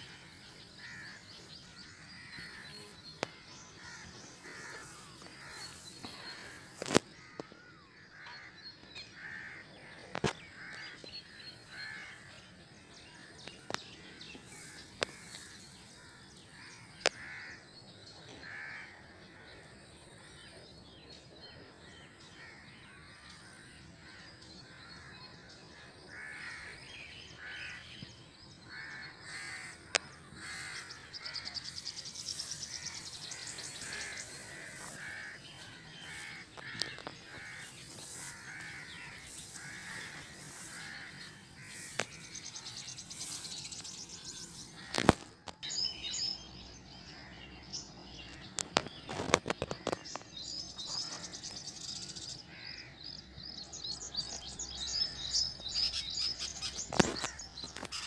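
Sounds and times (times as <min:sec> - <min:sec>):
crows cawing: 0:00.0 - 0:02.6, 0:03.2 - 0:11.0, 0:14.5 - 0:17.6, 0:18.4 - 0:19.5, 0:26.1 - 0:26.8, 0:28.7 - 0:45.2, 0:52.5 - 0:52.9
small birds chirping: 0:00.0 - 0:18.5, 0:26.2 - 0:58.0.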